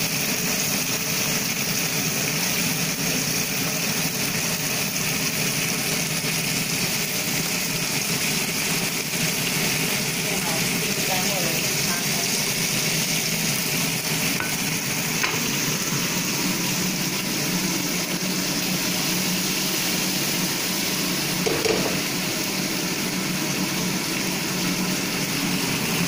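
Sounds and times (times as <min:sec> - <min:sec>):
fish sizzling in hot oil: 0:00.0 - 0:26.0
range hood fan humming: 0:00.0 - 0:26.0.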